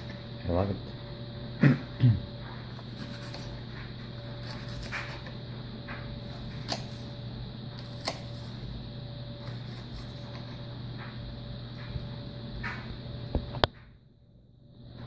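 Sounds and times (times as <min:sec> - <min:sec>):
steady low hum: 0:00.0 - 0:15.0
knife chopping on cutting board: 0:02.7 - 0:03.5, 0:04.3 - 0:05.3, 0:06.2 - 0:07.0, 0:07.8 - 0:08.5.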